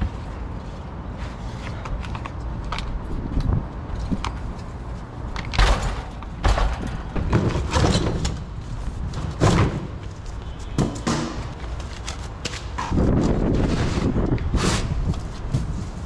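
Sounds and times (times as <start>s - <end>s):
wind on microphone: 2.8s - 4.6s, 12.8s - 16.0s.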